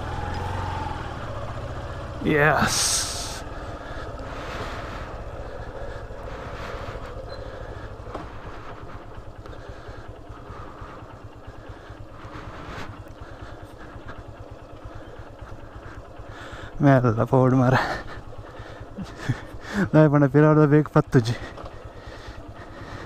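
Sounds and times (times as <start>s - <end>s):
motorcycle engine rumble: 0.0s - 23.0s.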